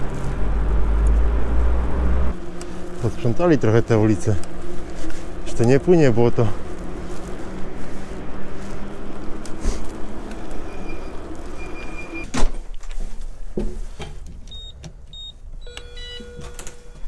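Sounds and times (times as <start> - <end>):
road and wind noise: 0.0 - 15.8
steady electronic tone: 10.5 - 12.3
high squeal: 10.6 - 12.3.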